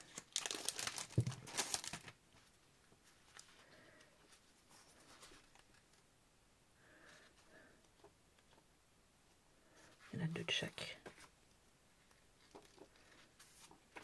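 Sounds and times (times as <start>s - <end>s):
plastic packaging crinkling: 0.0s - 2.2s
paper sheets rustling: 0.0s - 3.6s, 12.4s - 14.0s.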